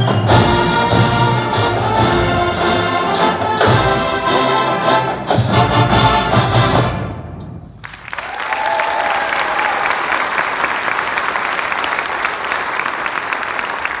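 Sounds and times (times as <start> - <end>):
audience applause: 7.8 - 14.0
audience cheer: 7.8 - 14.0.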